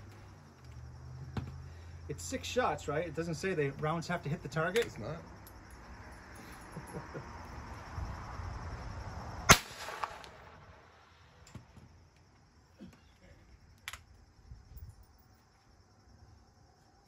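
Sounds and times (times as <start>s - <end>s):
smaller crack: 9.5s - 10.6s
rifle shot: 9.5s - 10.8s.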